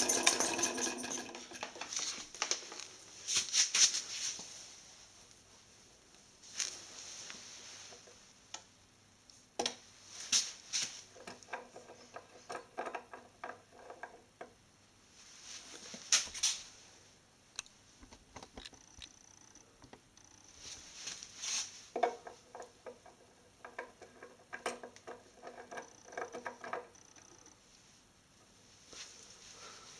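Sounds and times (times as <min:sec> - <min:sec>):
metal and glass parts clinking: 0:00.0 - 0:01.8.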